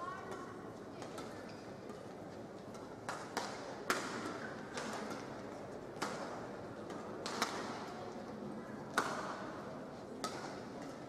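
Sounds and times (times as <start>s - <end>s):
racket striking shuttlecock: 2.7s - 5.4s, 6.0s - 8.0s, 8.9s - 9.6s, 10.2s - 11.0s.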